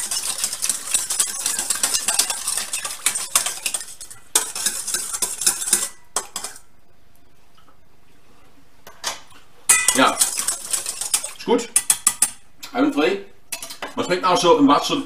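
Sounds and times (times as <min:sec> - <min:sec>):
whisk clicking in metal bowl: 0:00.0 - 0:06.6, 0:09.7 - 0:12.4.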